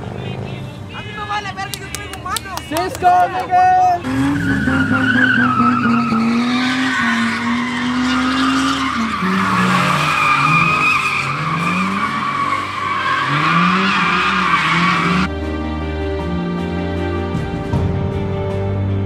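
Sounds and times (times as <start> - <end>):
truck engine revving: 4.0 - 15.3
tyres squealing: 4.0 - 15.3
background music: 12.0 - 19.0.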